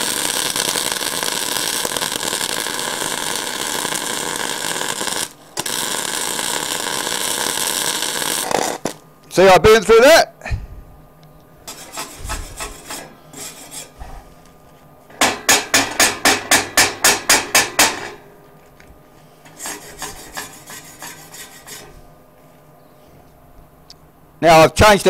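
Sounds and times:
wire brush scrubbing steel: 11.7s - 14.1s, 19.4s - 22.0s.

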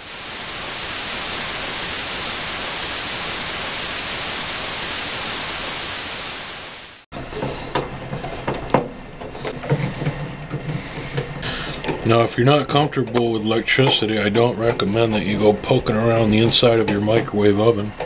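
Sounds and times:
white noise static hiss: 0.0s - 7.1s, 10.9s - 18.0s.

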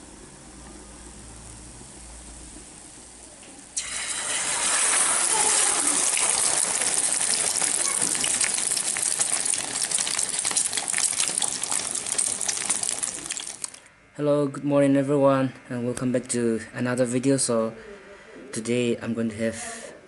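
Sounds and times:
egg sizzling in hot oil: 0.5s - 13.9s.

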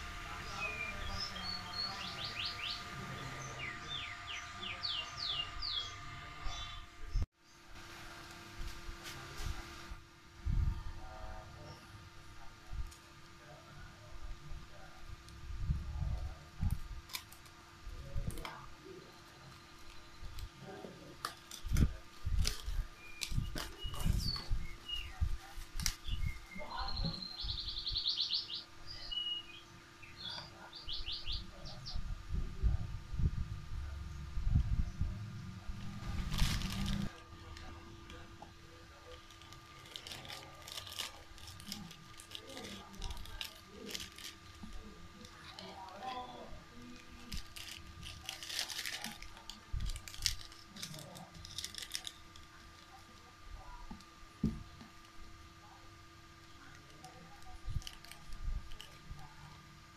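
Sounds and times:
songbird trilling: 0.5s - 6.8s, 26.0s - 32.0s
plastic and foil packets crinkling: 36.0s - 38.2s, 38.8s - 53.3s, 56.6s - 59.3s.

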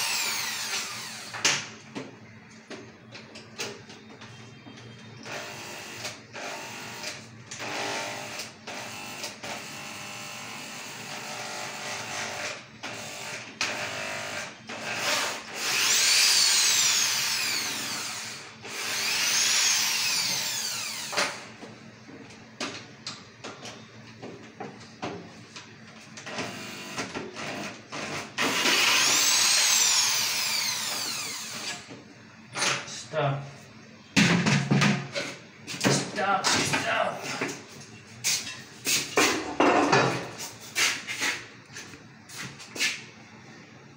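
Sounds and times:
electric drill drilling into metal: 0.0s - 1.5s, 5.3s - 21.4s, 28.3s - 31.8s.

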